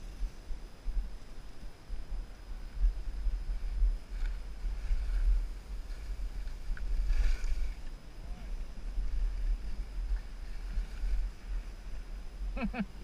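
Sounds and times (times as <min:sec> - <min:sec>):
wind buffeting microphone: 0:00.0 - 0:13.0
skis hissing over snow: 0:02.6 - 0:12.6
ski scrape: 0:04.1 - 0:07.9.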